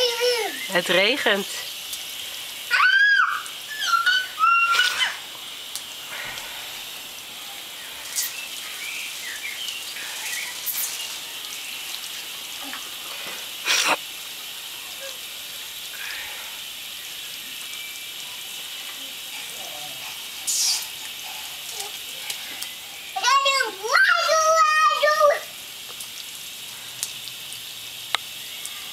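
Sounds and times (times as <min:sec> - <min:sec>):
sprinkler spraying water: 0:00.0 - 0:28.9.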